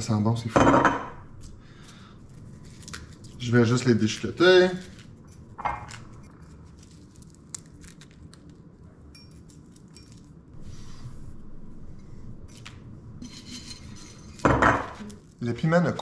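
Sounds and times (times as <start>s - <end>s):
dry pepper crackling and snapping: 2.6s - 5.1s, 5.9s - 8.7s.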